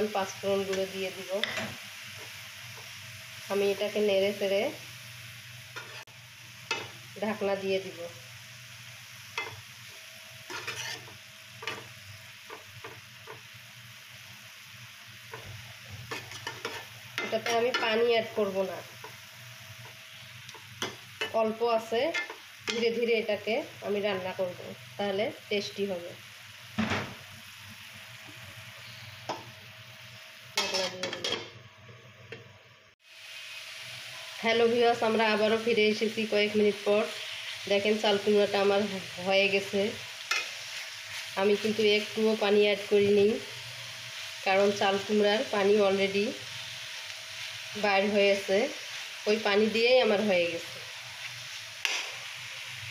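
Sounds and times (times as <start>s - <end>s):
vegetables sizzling in oil: 0.0s - 52.9s
spatula scraping metal pan: 10.5s - 11.9s, 16.1s - 17.9s, 30.6s - 31.4s.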